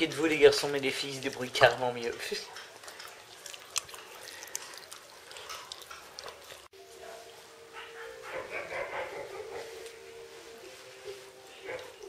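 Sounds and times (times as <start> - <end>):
puppy crunching bone: 0.2 - 6.7.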